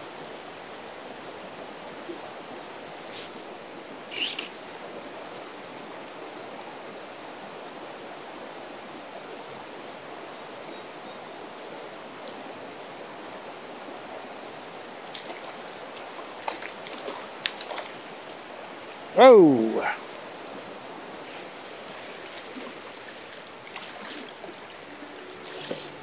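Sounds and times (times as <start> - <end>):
river rushing over rocks: 11.9 - 26.0.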